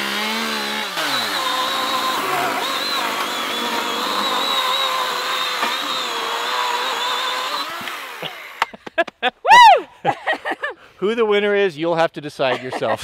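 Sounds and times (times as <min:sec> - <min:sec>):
electric chainsaw cutting board: 0:00.0 - 0:08.8.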